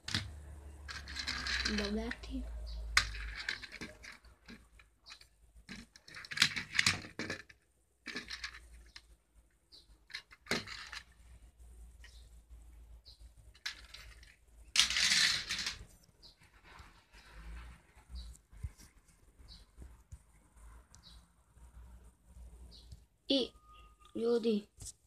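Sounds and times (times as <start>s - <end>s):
toy cars clicking on concrete: 0.0s - 11.4s, 13.5s - 18.4s
rustling scrape: 0.8s - 2.0s, 13.6s - 19.2s.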